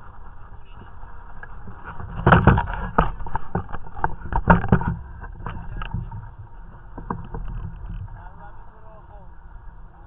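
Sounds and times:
low wind rumble: 0.0 - 10.0
knocks and scrapes: 1.4 - 8.2.

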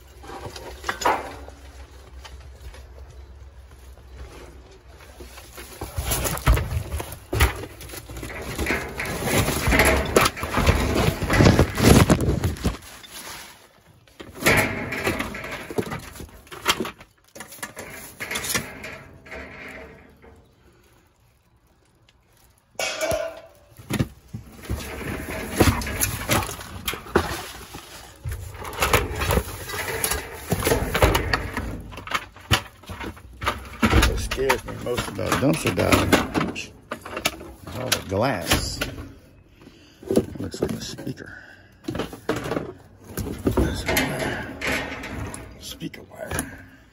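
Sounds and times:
objects knocking and clattering: 0.0 - 3.3, 4.8 - 13.3, 14.0 - 20.8, 22.4 - 39.4, 41.8 - 46.8
plastic bags crinkling: 1.5 - 19.0, 20.0 - 36.1.

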